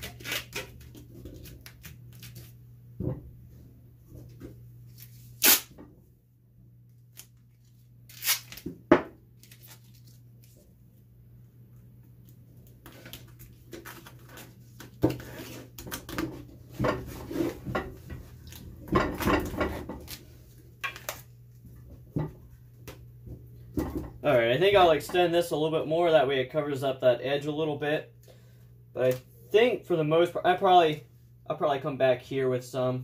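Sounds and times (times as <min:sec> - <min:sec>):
duct tape ripping: 0:00.0 - 0:02.6, 0:05.0 - 0:05.8, 0:08.1 - 0:08.8
tape crinkling and rubbing: 0:00.0 - 0:02.6, 0:04.9 - 0:05.7, 0:06.9 - 0:08.8, 0:09.4 - 0:10.6, 0:12.2 - 0:16.5, 0:19.9 - 0:21.3
low steady hum: 0:00.0 - 0:33.0.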